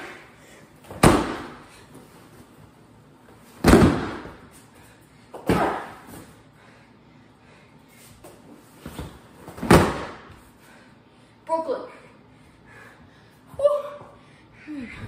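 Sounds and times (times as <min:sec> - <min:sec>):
thuds on a stuffed dummy: 0:00.9 - 0:01.6, 0:03.6 - 0:04.4, 0:09.5 - 0:10.2.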